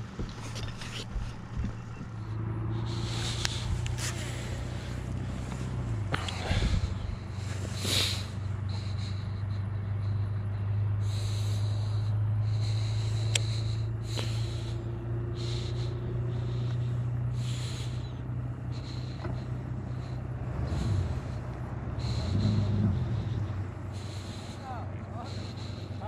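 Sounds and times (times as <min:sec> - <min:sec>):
electric trolling motor humming: 0:00.0 - 0:26.0
short hissing puffs: 0:02.8 - 0:09.0.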